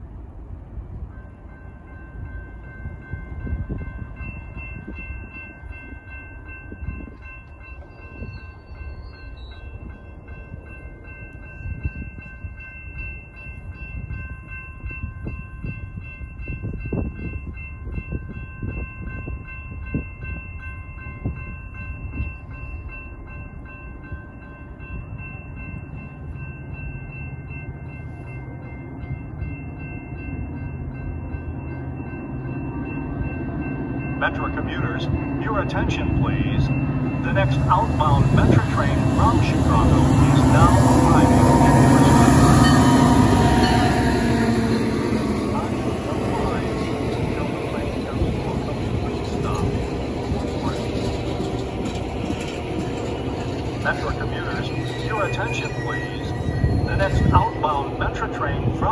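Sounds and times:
wind buffeting microphone: 0.0 - 31.6, 32.2 - 54.6, 56.0 - 58.9
crossing warning bells ringing: 0.0 - 58.9.

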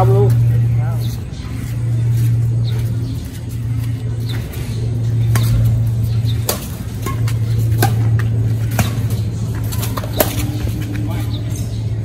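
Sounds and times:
steady low hum: 0.0 - 12.0
racket hitting shuttlecock: 5.3 - 5.7, 6.4 - 10.9.

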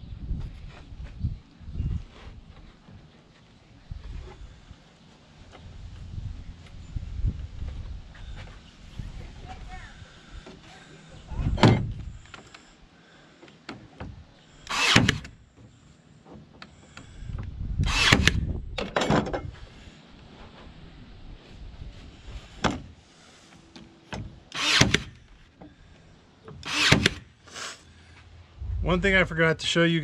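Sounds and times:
nail gun shots into wood: 14.7 - 15.3, 17.8 - 18.5, 24.5 - 25.2, 26.6 - 27.3.

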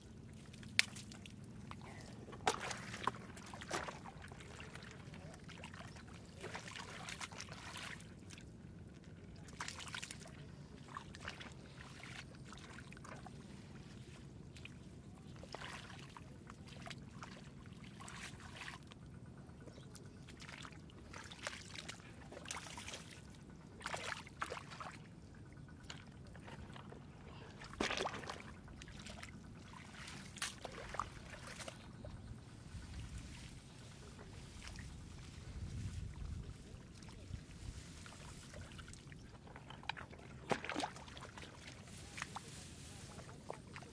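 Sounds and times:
steady low hum: 0.0 - 43.9
shallow water splashing: 0.2 - 8.6, 20.2 - 43.9.

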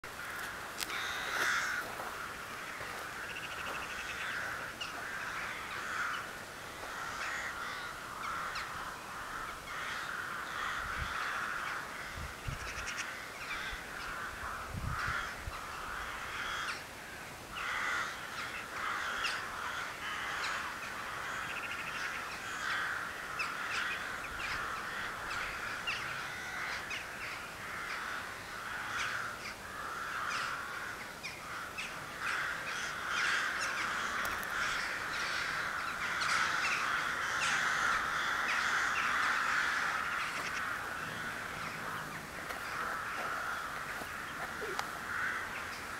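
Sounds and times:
chorus of birds calling: 0.0 - 45.9.

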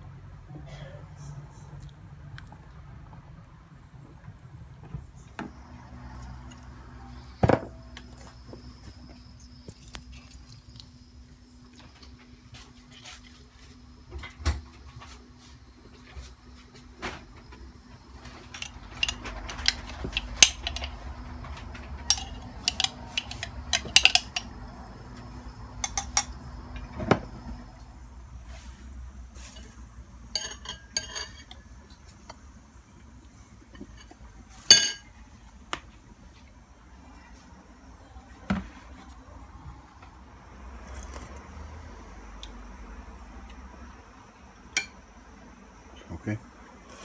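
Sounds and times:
dishes and cutlery clinking: 22.0 - 24.5, 29.4 - 31.6, 33.8 - 35.1.

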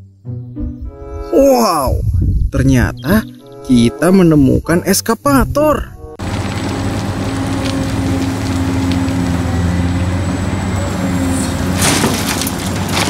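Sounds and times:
excavator diesel drone: 6.2 - 13.0.

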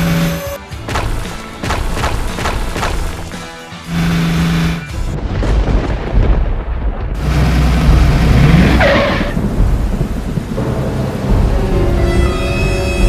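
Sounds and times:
rain: 3.9 - 13.0
rolling thunder: 5.0 - 12.1.

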